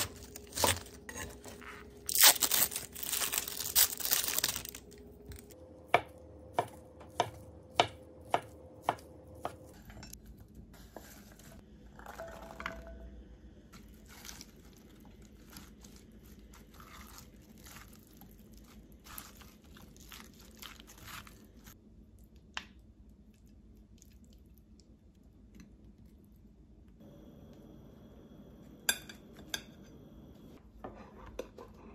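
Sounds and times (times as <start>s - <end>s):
knife chopping on wooden board: 5.9s - 9.8s.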